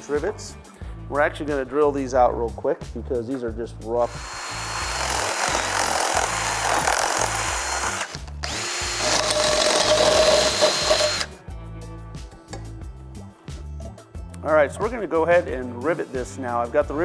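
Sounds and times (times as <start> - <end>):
background music: 0.0 - 17.0
electric drill boring into steel: 4.1 - 11.3.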